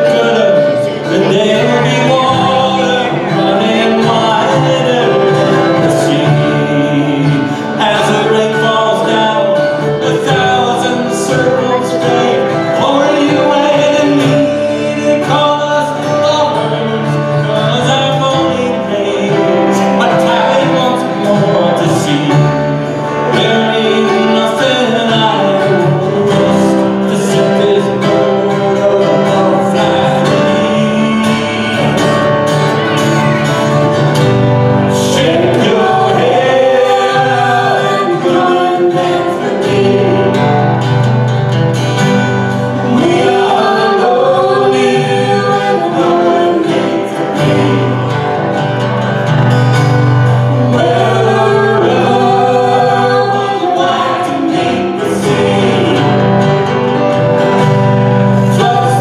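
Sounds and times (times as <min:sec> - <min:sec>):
guitars: 0:00.0 - 0:59.0
keyboard: 0:00.0 - 0:59.0
woman singing lead: 0:42.8 - 0:48.6, 0:50.6 - 0:56.7.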